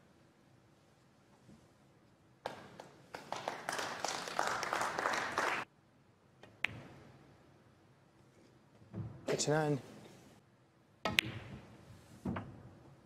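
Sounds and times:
audience applause: 3.1s - 5.7s.

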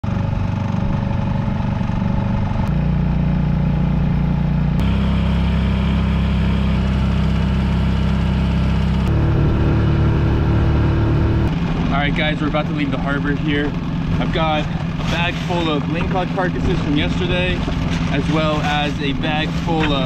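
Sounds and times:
outboard motor running: 0.0s - 20.0s
water rushing along hull: 11.5s - 20.0s.

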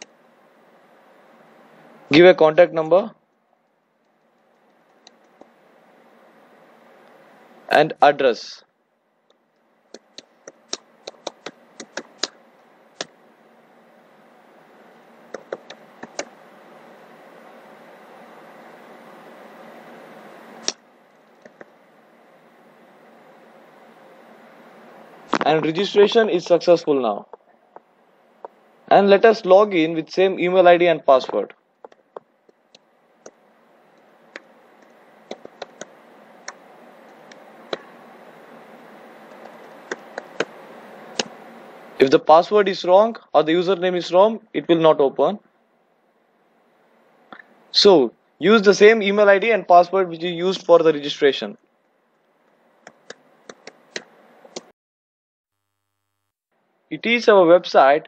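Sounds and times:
faint hiss: 9.5s - 31.6s, 32.6s - 51.6s.

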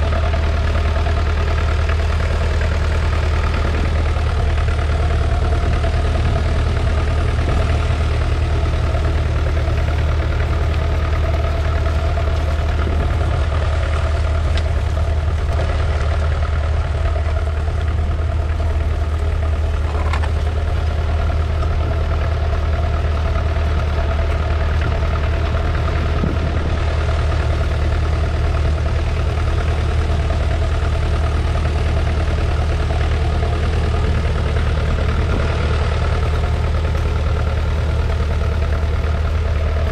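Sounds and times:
diesel engine droning: 0.0s - 39.9s.

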